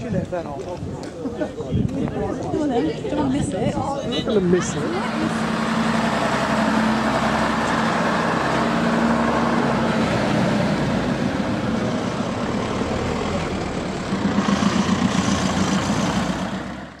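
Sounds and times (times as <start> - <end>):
bus diesel engine driving off: 3.8 - 17.0
car passing close: 4.9 - 17.0.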